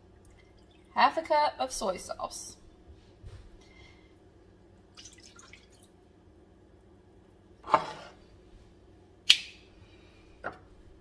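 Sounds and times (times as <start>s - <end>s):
liquid pouring into metal bowl: 4.9s - 5.9s.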